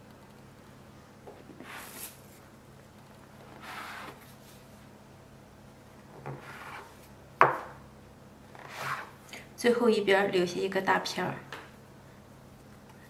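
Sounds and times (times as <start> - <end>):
dough scraper scraping: 3.4 - 4.3, 6.3 - 7.0, 8.6 - 9.2.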